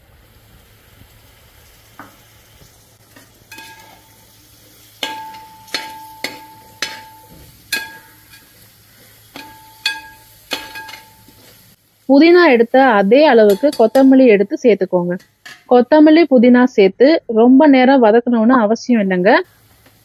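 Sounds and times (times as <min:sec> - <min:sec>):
light sizzle: 0:00.0 - 0:17.1, 0:18.1 - 0:20.0
metal ladle scraping pot: 0:03.5 - 0:04.2.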